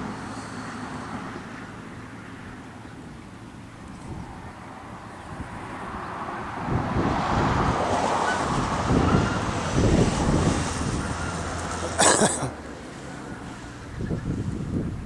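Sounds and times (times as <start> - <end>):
gusty wind buffeting microphone: 3.6 - 12.0, 13.0 - 15.0.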